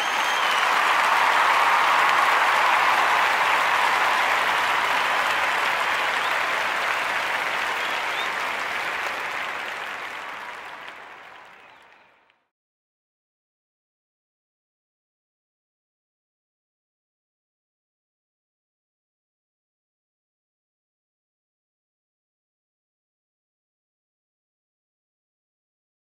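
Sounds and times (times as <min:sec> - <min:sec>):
audience applause: 0:00.0 - 0:12.4.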